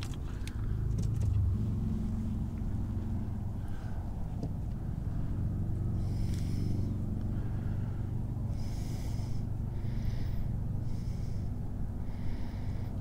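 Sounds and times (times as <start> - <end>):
low hum: 0.0 - 13.0
man breathing through nose: 3.3 - 13.0.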